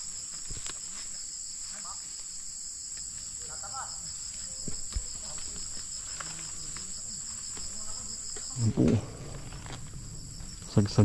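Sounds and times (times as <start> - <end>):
insect chorus: 0.0 - 11.0
rustles and clicks of vines: 0.0 - 11.0
short low sound: 8.6 - 10.0.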